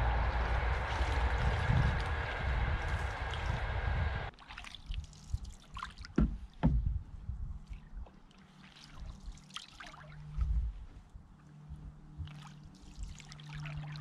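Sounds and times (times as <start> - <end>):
steady rushing noise: 0.0 - 4.3
paddle splashing water: 0.1 - 3.7, 4.3 - 6.9, 7.6 - 10.5.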